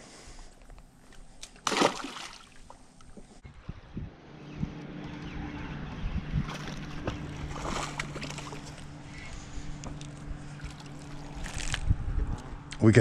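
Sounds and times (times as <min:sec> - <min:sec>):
steady low hum: 0:00.0 - 0:13.0
fish splashing at surface: 0:01.6 - 0:02.7.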